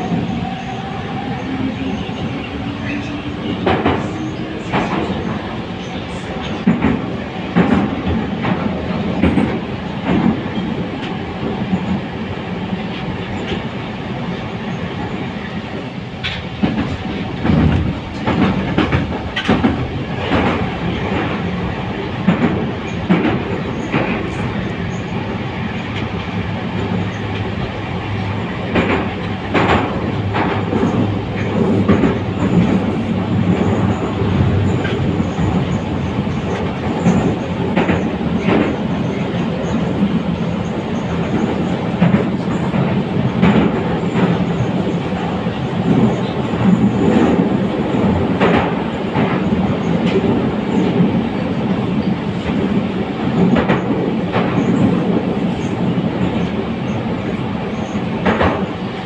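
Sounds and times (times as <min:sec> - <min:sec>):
metro train wheels rumbling: 0:00.0 - 0:59.0
wheels clacking over rail joints: 0:16.2 - 0:44.8.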